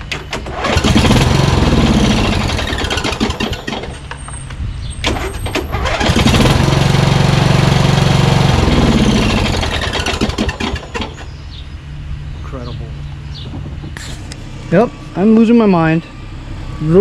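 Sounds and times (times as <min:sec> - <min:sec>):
engine cranked by electric starter: 0:00.0 - 0:04.3, 0:05.0 - 0:11.4.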